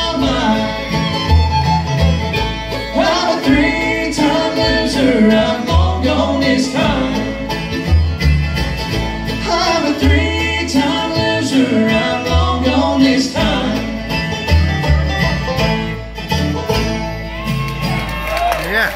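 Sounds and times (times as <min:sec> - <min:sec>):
live bluegrass band playing: 0:00.0 - 0:18.9.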